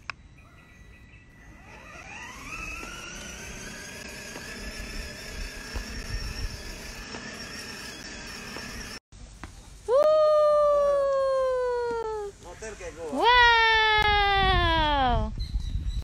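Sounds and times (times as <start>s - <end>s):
toy car electric motor whining: 1.5s - 9.0s.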